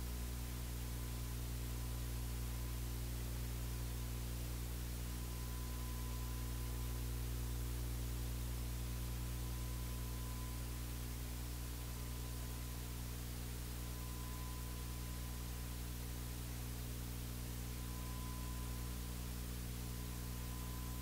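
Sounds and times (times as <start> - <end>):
electrical hum with hiss: 0.0 - 21.0
faint high tone: 14.0 - 15.2, 17.8 - 18.9, 20.0 - 21.0.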